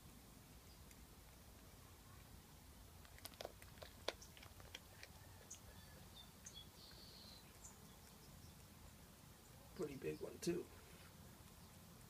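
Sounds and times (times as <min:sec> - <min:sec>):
cat chewing bones: 0:02.9 - 0:05.6.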